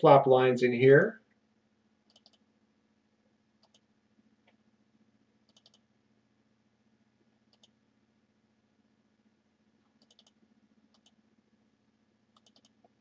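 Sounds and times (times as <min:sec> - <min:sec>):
computer mouse clicks: 0:02.1 - 0:02.5, 0:03.6 - 0:04.6, 0:05.5 - 0:05.9, 0:07.5 - 0:07.8, 0:09.9 - 0:11.2, 0:12.4 - 0:13.0.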